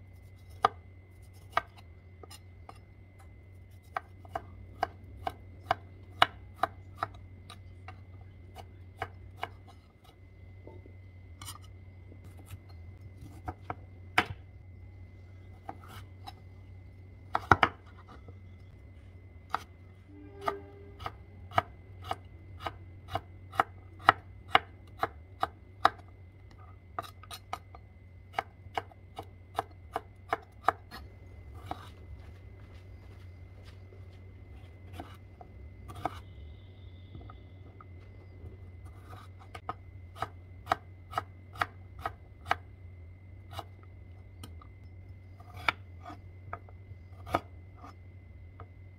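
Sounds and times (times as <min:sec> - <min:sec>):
faint steady hum: 0:00.0 - 0:48.9
knife chopping on wooden board: 0:00.5 - 0:02.8, 0:03.8 - 0:07.2, 0:08.5 - 0:09.6, 0:13.2 - 0:14.4, 0:17.3 - 0:18.2, 0:31.6 - 0:32.0, 0:35.9 - 0:36.3.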